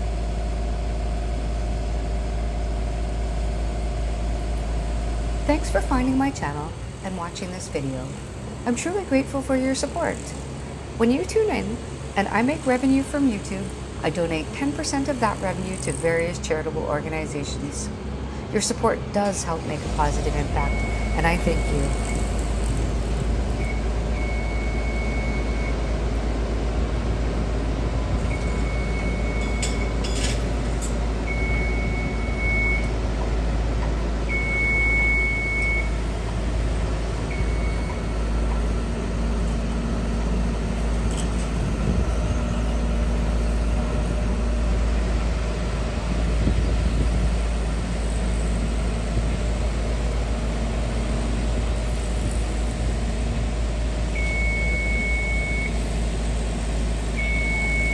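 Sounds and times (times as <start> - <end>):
heavy machinery rumbling: 0.0 - 57.9
electronic warning beeps: 20.5 - 22.3, 28.3 - 30.0, 31.3 - 33.0, 34.3 - 36.0, 37.3 - 38.2, 54.2 - 55.8, 57.2 - 57.9.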